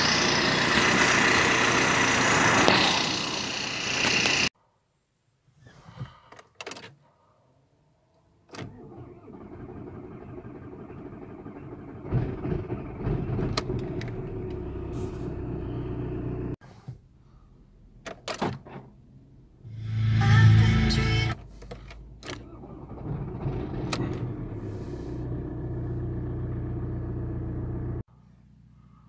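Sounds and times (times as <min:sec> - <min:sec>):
diesel engine starting and running: 0:00.0 - 0:04.5, 0:08.5 - 0:16.6, 0:19.6 - 0:29.0.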